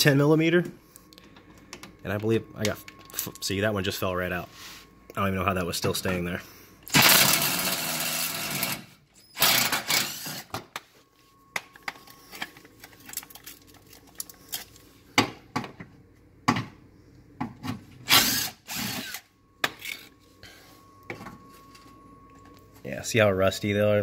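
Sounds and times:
impact driver spinning: 6.9s - 10.5s, 18.0s - 19.2s.

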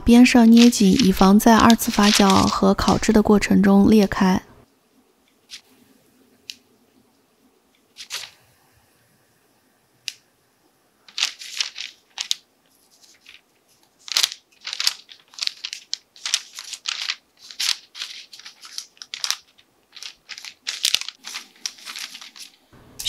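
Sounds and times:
baking paper rustling and crinkling: 0.1s - 3.6s, 5.4s - 5.8s, 7.9s - 8.4s, 11.0s - 22.7s.

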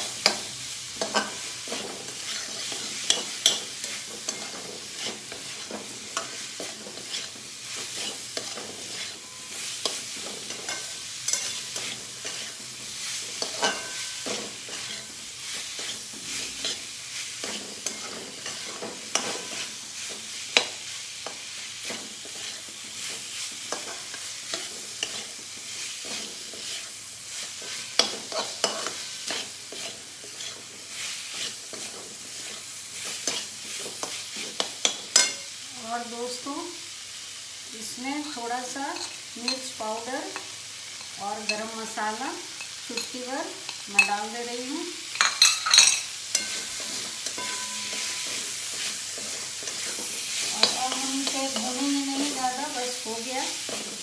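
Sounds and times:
food sizzling in oil: 0.0s - 54.0s
metal spatula scraping pan: 1.0s - 12.6s, 13.3s - 15.2s, 17.4s - 19.8s, 27.7s - 30.7s, 45.2s - 52.5s.

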